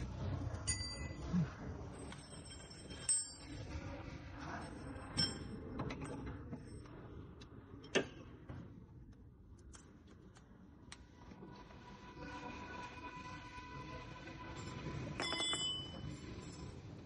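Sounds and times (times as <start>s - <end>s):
metallic clinks and taps: 15.2s - 16.6s.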